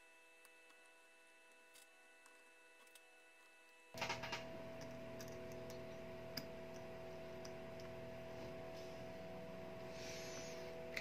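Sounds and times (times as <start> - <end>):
steady background hum: 0.0 - 11.0
small tools ticking and clicking: 1.5 - 7.9.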